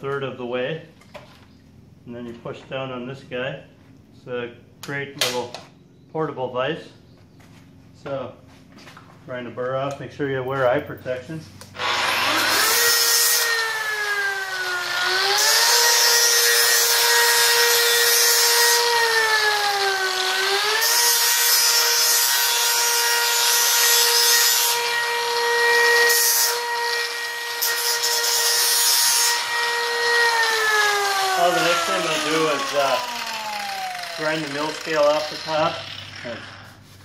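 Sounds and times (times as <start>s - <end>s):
angle grinder grinding steel: 11.7s - 37.0s.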